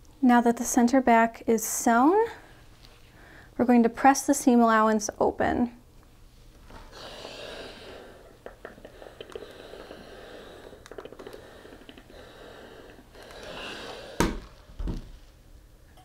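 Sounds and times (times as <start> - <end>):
iron rubbing and hissing: 6.7 - 14.6.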